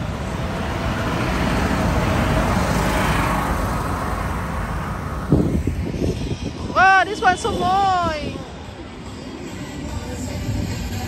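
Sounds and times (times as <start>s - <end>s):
tractor diesel engine passing: 0.0s - 7.4s.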